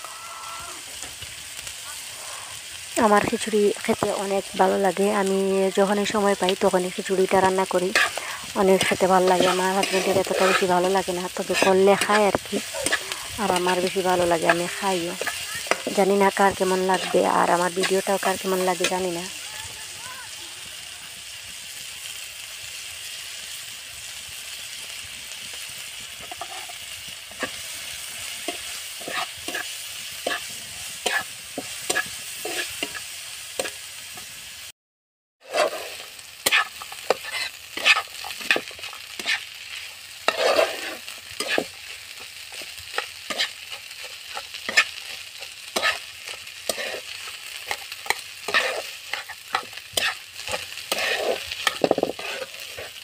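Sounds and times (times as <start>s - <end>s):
onions sizzling in hot oil: 0.0s - 34.7s, 35.4s - 53.0s
spatula scraping and tapping pan: 7.4s - 19.1s, 26.2s - 27.6s, 28.4s - 34.3s, 35.5s - 53.0s.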